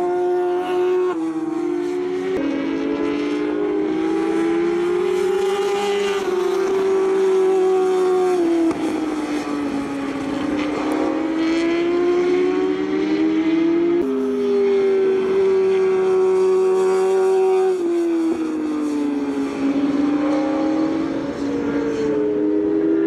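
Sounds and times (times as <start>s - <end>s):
racing motorcycles passing: 0.0s - 23.0s.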